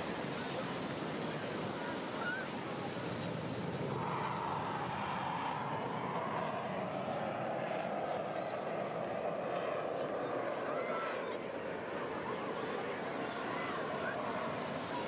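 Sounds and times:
distant aircraft engine drone: 0.0 - 15.0
wind: 0.0 - 15.0
surf: 10.1 - 15.0.

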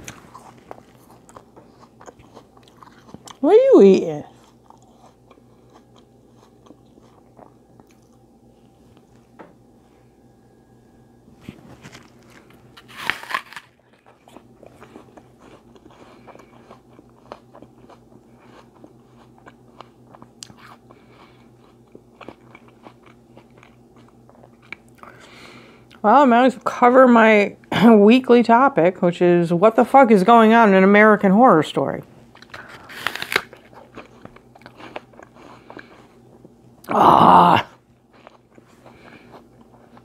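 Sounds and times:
person chewing crunchy food: 0.0 - 3.4, 4.3 - 9.2, 11.4 - 26.0, 32.3 - 40.0.

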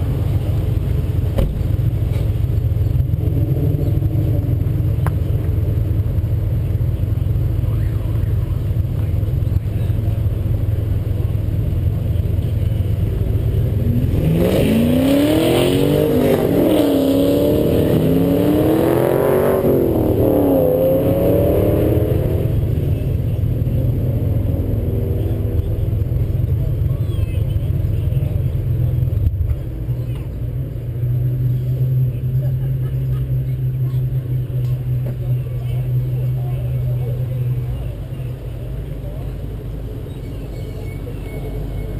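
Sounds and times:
car engine idling: 0.0 - 14.2, 22.0 - 41.9
engine revving: 13.3 - 26.7.

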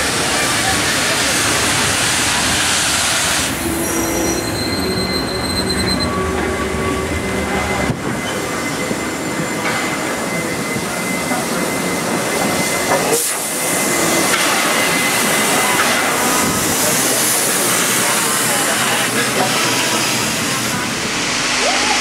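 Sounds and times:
steam locomotive wheels rumbling: 0.0 - 22.0
high-pitched wheel squeals: 3.6 - 12.8.

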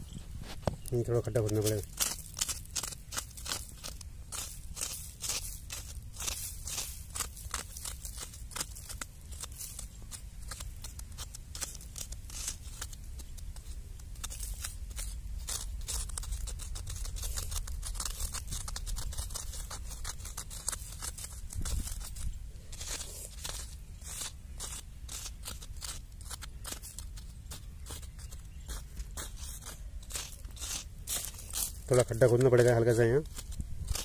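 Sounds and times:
digging tool scraping soil: 0.0 - 34.0
steady low rumble: 0.0 - 34.0.

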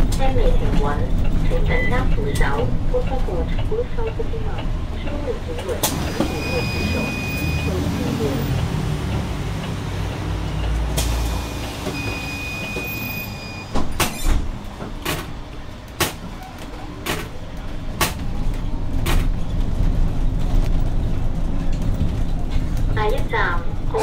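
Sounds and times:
bus interior rumble: 0.0 - 24.0
electronic beep: 6.2 - 7.8, 11.4 - 13.8.

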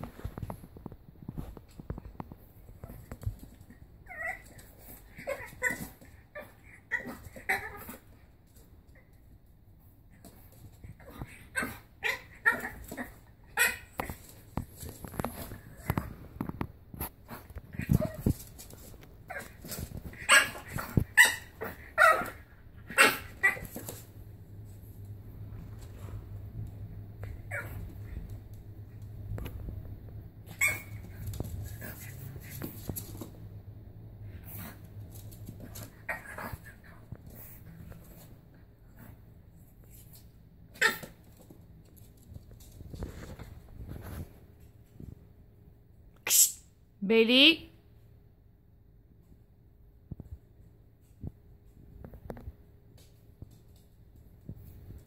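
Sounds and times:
puppy yapping: 19.3 - 24.0, 40.7 - 41.2.

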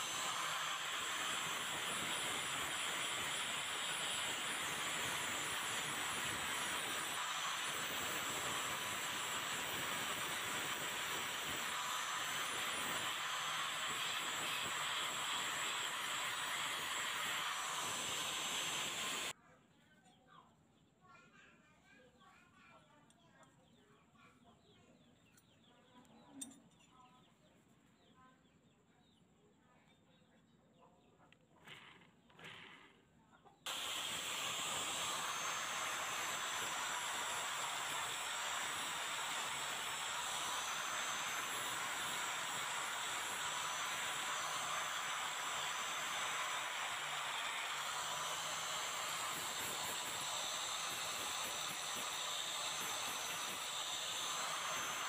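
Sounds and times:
angle grinder grinding metal: 0.0 - 19.3, 33.7 - 55.0.

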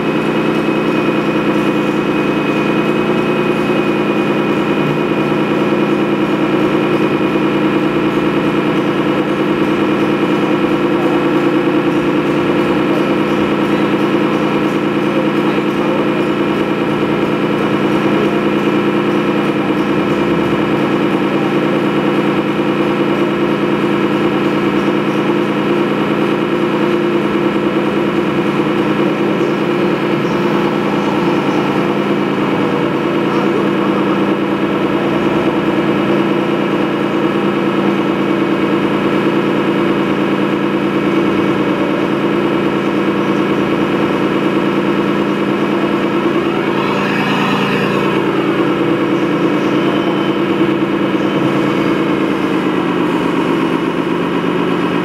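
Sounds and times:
model car motor hum: 0.0 - 55.0.

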